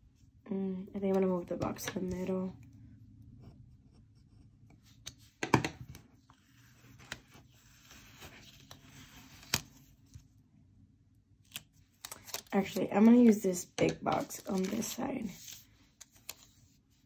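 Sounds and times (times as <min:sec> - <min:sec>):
paper stickers rustling: 0:11.5 - 0:16.6.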